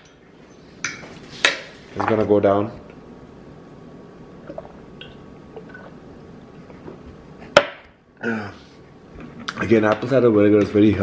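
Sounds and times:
person gulping a drink: 4.4 - 6.0.

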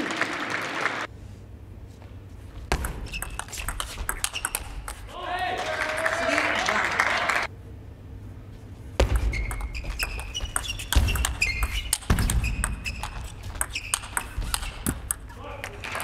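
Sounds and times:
shoes squeaking on floor: 9.2 - 14.9.

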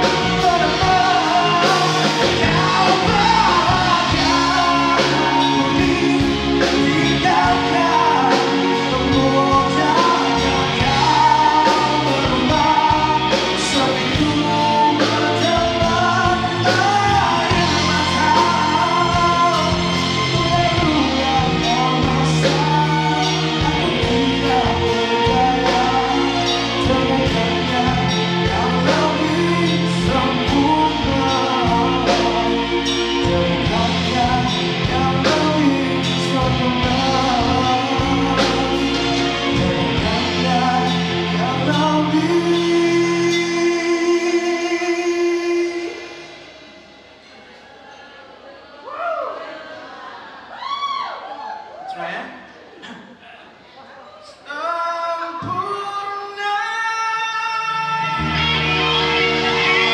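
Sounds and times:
electric bass guitar: 0.0 - 44.2, 57.8 - 59.9
man singing into microphone: 0.0 - 46.5, 54.4 - 58.6
drums and cymbals: 0.0 - 47.8.

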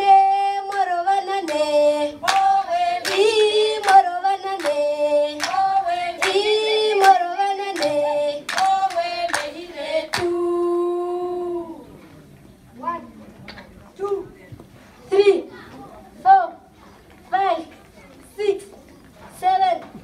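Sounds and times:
voices singing: 0.0 - 12.1
hand claps: 0.7 - 10.4.

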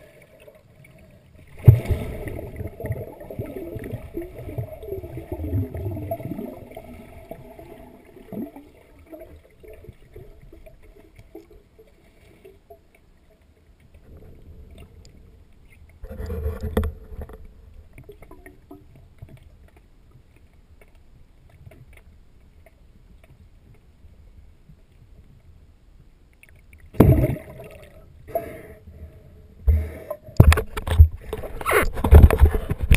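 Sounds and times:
muffled underwater sloshing: 0.0 - 32.9
loud splashes and knocks: 1.6 - 3.0.

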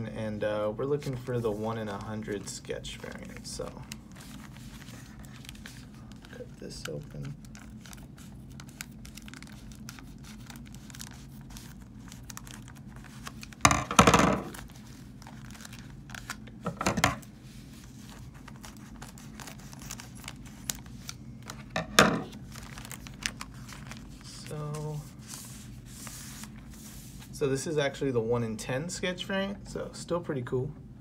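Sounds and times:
plastic bag crinkling: 1.7 - 17.2, 17.9 - 26.8
plastic ripping: 2.0 - 17.2, 18.1 - 25.5.

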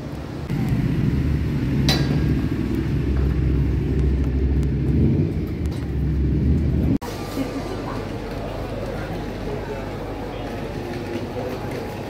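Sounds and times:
engine running low rumble: 0.0 - 7.0.

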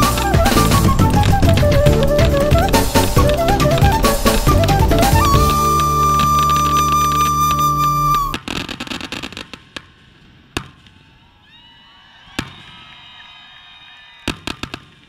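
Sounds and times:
faint firework whistles: 0.0 - 8.8
crackling firework pops: 0.0 - 11.0, 14.3 - 15.0.

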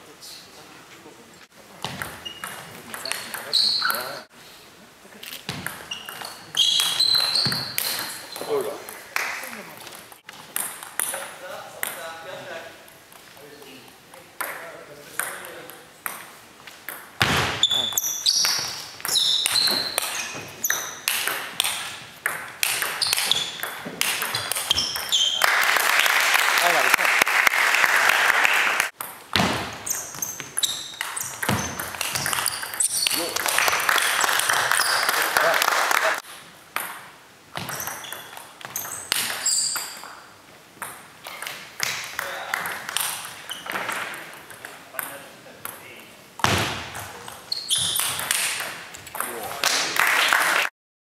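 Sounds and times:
table tennis ball hits: 1.8 - 4.0, 5.5 - 8.8, 10.5 - 12.0, 14.4 - 16.2, 16.9 - 25.4, 29.0 - 33.4, 36.7 - 40.2, 46.4 - 49.4
shoe squeaks: 1.8 - 4.3, 5.6 - 8.8, 17.5 - 21.1, 22.7 - 25.5, 29.8 - 33.4, 34.7 - 35.3, 37.6 - 40.2, 43.4 - 43.9, 47.4 - 48.3
table tennis ball clicking: 19.4 - 25.1
applause: 25.4 - 28.9, 33.2 - 36.2, 49.6 - 50.7.

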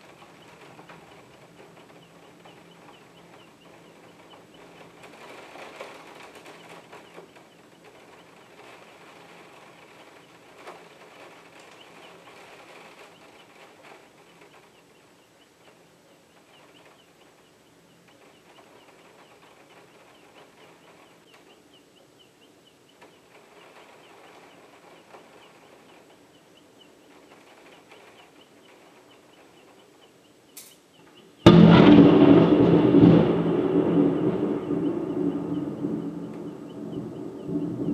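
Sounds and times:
storm ambience: 0.0 - 14.8, 31.3 - 37.9
faint birdsong: 0.0 - 31.5, 32.7 - 37.9
loud thunderclap rumbling: 31.4 - 37.9.

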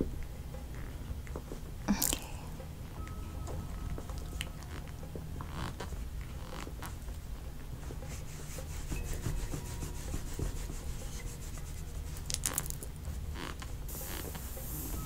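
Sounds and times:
hands rubbing skin and cloth: 7.7 - 14.5
steady high hiss: 7.7 - 15.0.

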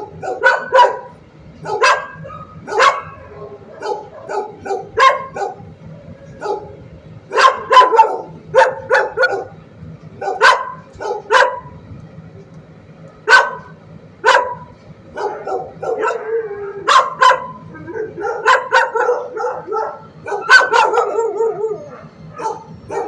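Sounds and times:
dogs barking: 0.0 - 9.6, 10.2 - 11.8, 13.2 - 23.0.

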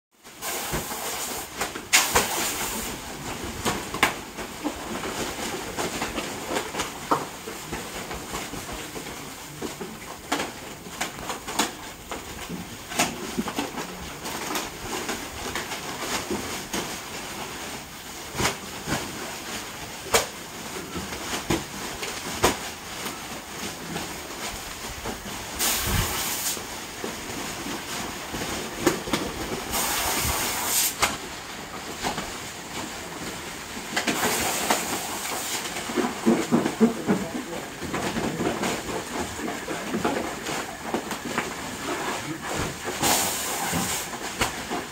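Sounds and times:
plastic bags crinkling: 0.3 - 44.9
gas hissing from hoses: 0.4 - 3.0, 25.6 - 26.6, 29.7 - 31.0, 43.0 - 44.1.

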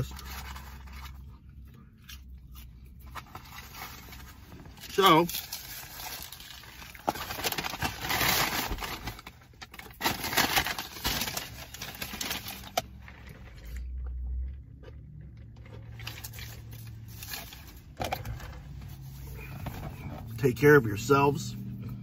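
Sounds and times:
fast-food packaging rustling: 0.0 - 13.9, 15.6 - 20.4.

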